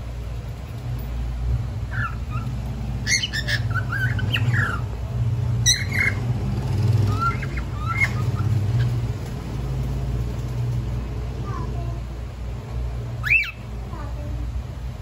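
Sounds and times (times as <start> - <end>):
steady low hum: 0.0 - 15.0
cockatiel chirping: 1.9 - 4.9, 5.6 - 9.1, 13.2 - 13.6
cockatiel squawking: 1.9 - 4.9, 5.6 - 6.3, 7.0 - 9.0, 13.2 - 13.6.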